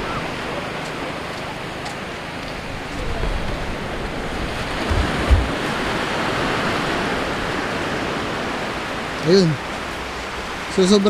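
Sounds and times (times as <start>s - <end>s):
wind buffeting microphone: 0.0s - 10.8s
sea surf washing on shore: 0.0s - 11.0s
low thumps on microphone: 2.9s - 5.8s.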